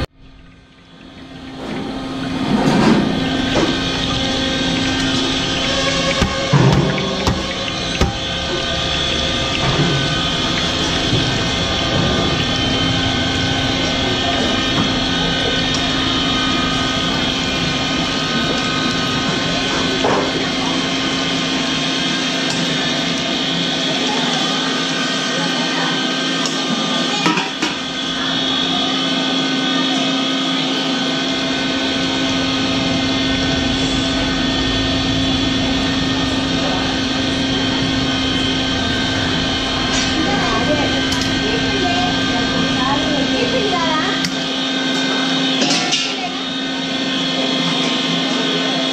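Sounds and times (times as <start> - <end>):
low rumble: 0.0 - 21.3, 31.3 - 42.9
crackers deep-frying in oil: 0.0 - 48.1
droning hum: 0.0 - 48.9.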